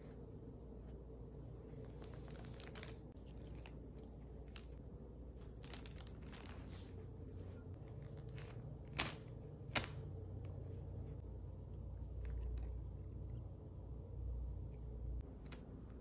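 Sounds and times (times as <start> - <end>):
plastic bag crinkling under paws: 1.8 - 7.2.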